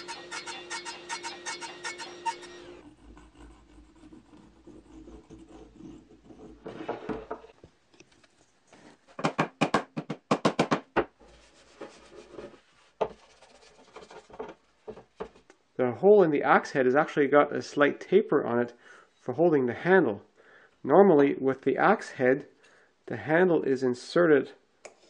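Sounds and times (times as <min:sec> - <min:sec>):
wood scraping strokes: 0:11.2 - 0:15.4.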